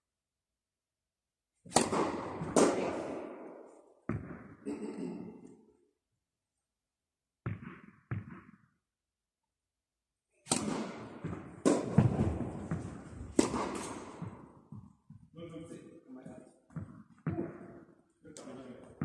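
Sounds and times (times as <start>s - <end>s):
racket hitting tennis ball: 1.6s - 4.6s, 7.5s - 8.7s, 10.4s - 15.0s
tennis ball bouncing: 1.7s - 4.6s, 7.4s - 8.8s, 10.5s - 15.3s, 16.7s - 17.8s.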